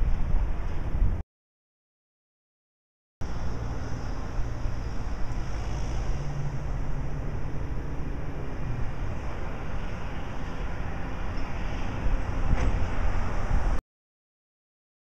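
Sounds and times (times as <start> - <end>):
heavy truck engine rumbling: 3.2 - 13.8.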